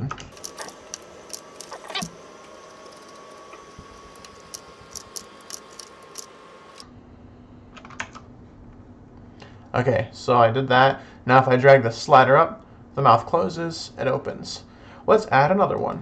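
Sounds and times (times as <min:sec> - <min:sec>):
computer mouse clicks: 0:00.4 - 0:06.8
keyboard clicks: 0:00.4 - 0:06.8.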